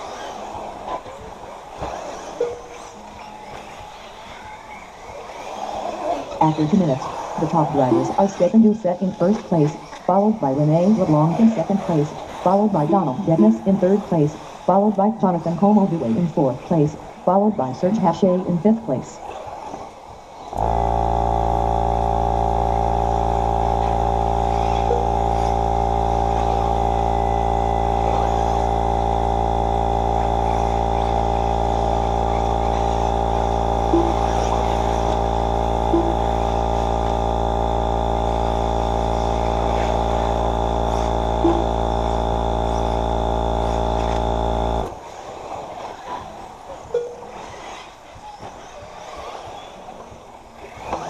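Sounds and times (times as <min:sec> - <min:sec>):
loud electrical hum: 0:05.7 - 0:19.3, 0:19.9 - 0:46.7.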